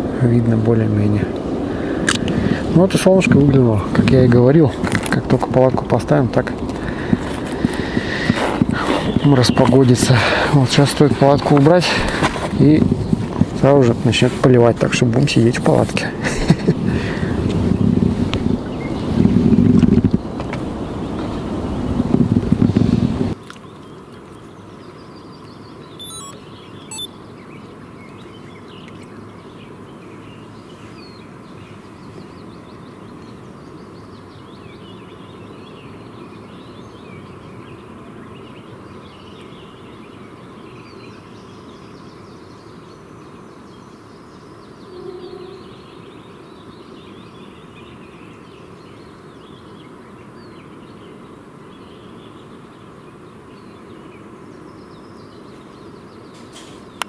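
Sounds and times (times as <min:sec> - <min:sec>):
faint bird chirps: 0:23.6 - 0:29.2, 0:40.7 - 0:49.8
sharp high clicks: 0:26.0 - 0:27.1.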